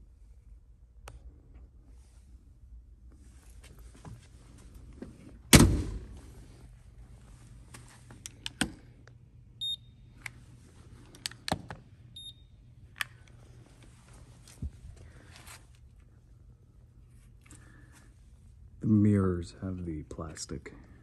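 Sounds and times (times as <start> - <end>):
short high beeps: 9.6 - 9.8, 12.2 - 12.4.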